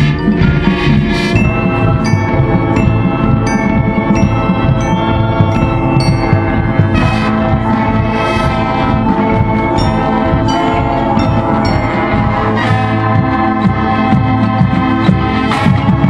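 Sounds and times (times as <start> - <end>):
brass sustained chords: 0.0 - 16.0
mallet percussion notes: 0.0 - 16.0.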